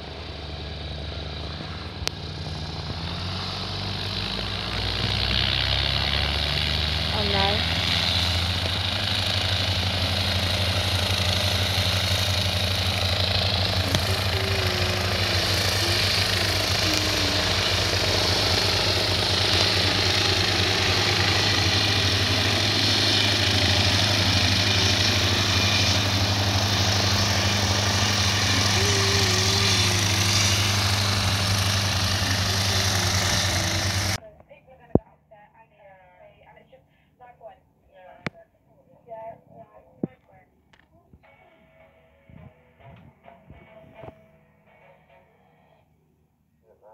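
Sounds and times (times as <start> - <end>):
propeller aircraft engine droning: 0.0 - 34.2.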